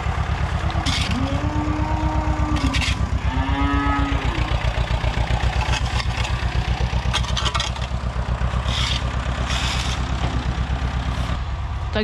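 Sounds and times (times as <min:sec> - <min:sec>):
tractor diesel engine throbbing: 0:00.0 - 0:12.0
metallic clatters and scrapes: 0:00.8 - 0:01.2, 0:02.5 - 0:03.1, 0:05.4 - 0:11.4.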